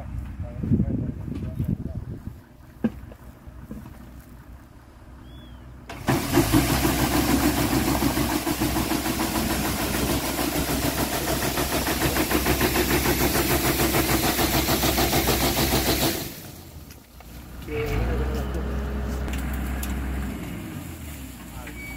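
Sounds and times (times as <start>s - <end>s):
tree shaker engine rattling: 6.0s - 17.5s.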